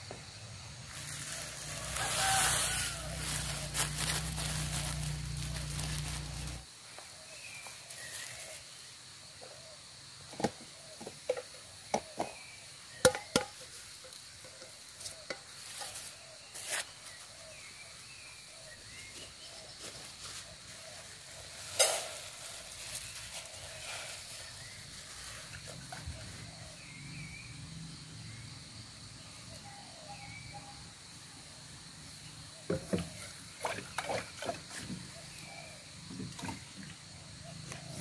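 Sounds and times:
plastic packets rustling and crinkling: 0:00.9 - 0:06.6.

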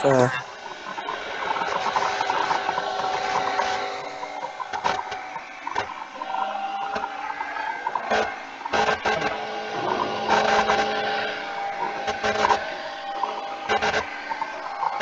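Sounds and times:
steady hum: 0:00.0 - 0:15.0.

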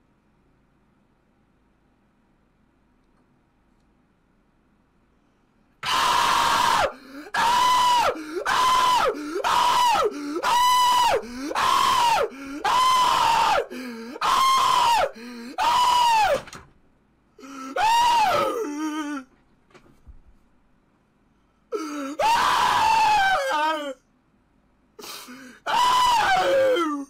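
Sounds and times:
young man screaming: 0:05.8 - 0:16.5, 0:17.4 - 0:19.3, 0:21.8 - 0:24.0, 0:25.4 - 0:27.0.

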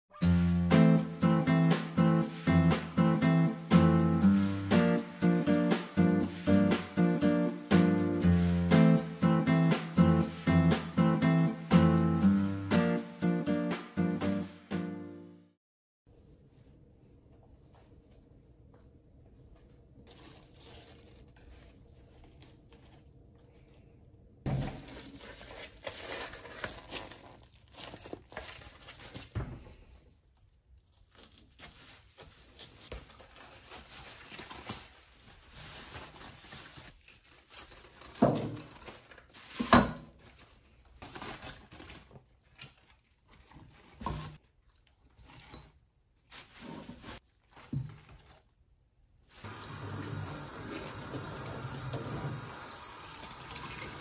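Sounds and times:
plastic bag crinkling: 0:24.8 - 0:29.4, 0:30.7 - 0:45.6, 0:46.2 - 0:48.6.

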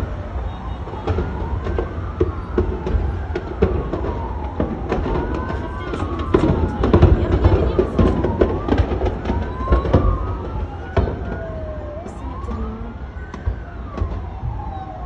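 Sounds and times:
siren wailing: 0:00.0 - 0:15.0
sharp pops and cracks: 0:00.9 - 0:11.5.

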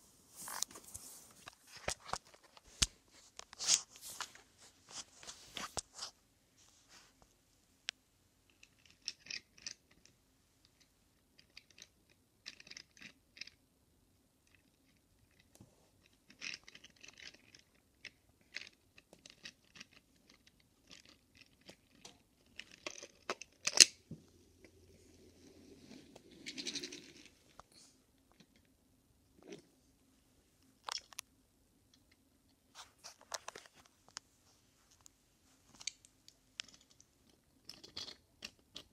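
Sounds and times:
toy car wheels rolling and scraping: 0:25.4 - 0:27.6.

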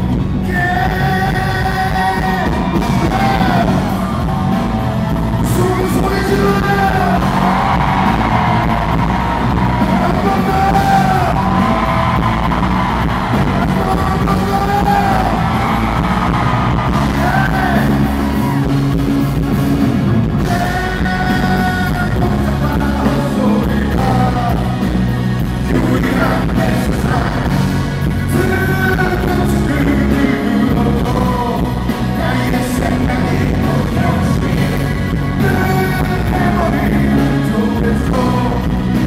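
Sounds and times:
full band playing: 0:00.0 - 0:39.0
man singing through a pa: 0:00.4 - 0:03.8, 0:20.4 - 0:24.7, 0:25.7 - 0:27.5, 0:28.3 - 0:38.7.

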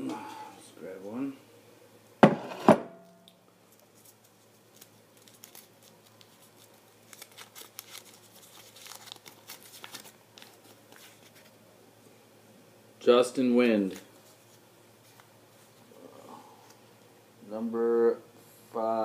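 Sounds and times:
paper crinkling: 0:03.7 - 0:11.6.

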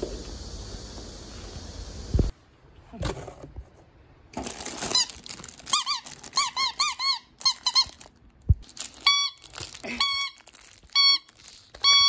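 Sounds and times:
plastic wrapping rustling: 0:04.2 - 0:12.0
squeaky dog toy squeaking: 0:04.9 - 0:08.2, 0:08.9 - 0:12.0.

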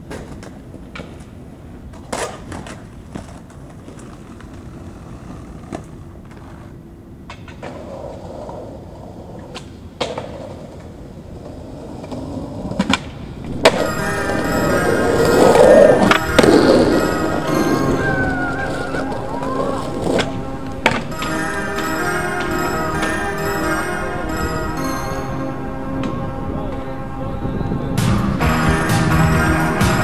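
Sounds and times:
skateboard clacks: 0:00.0 - 0:23.5
skateboard wheels rolling on concrete: 0:00.0 - 0:30.0.

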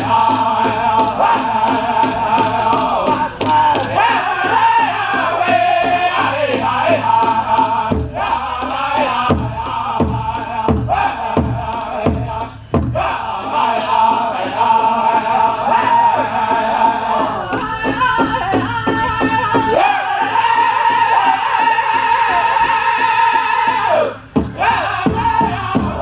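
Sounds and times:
bass drum strokes: 0:00.0 - 0:19.9
group singing in high voices: 0:00.0 - 0:26.0.

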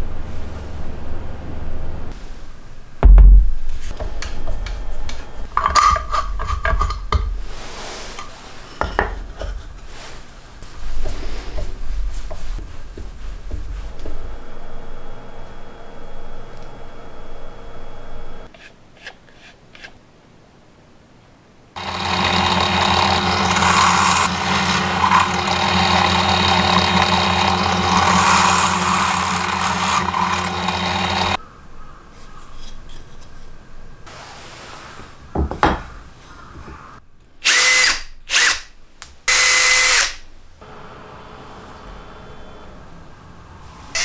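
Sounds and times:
drill press motor hum: 0:21.8 - 0:31.4, 0:39.3 - 0:42.9.

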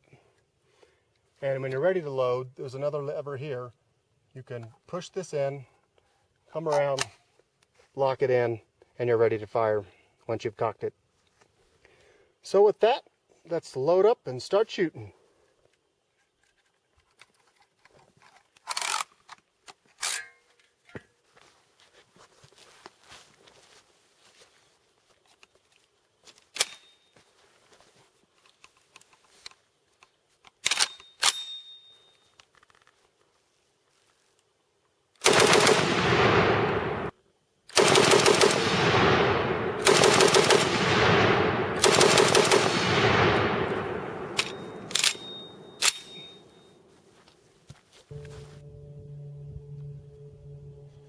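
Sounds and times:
machine gun firing: 0:35.2 - 0:37.1, 0:37.7 - 0:46.4
sharp clicks: 0:37.7 - 0:46.5.

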